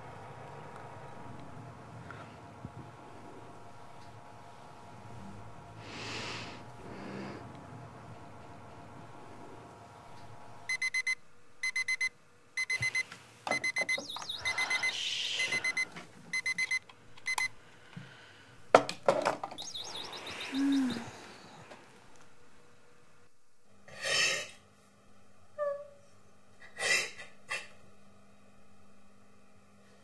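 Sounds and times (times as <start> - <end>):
alarm clock beeping: 10.7 - 17.5.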